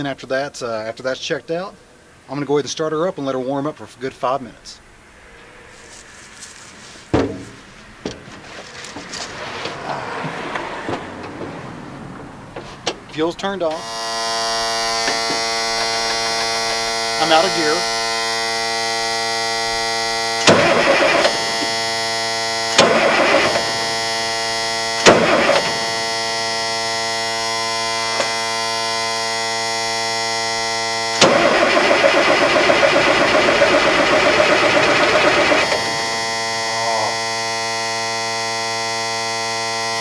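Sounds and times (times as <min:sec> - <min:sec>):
starter cranking diesel engine: 0:07.9 - 0:40.0
steady electrical buzz: 0:13.5 - 0:40.0.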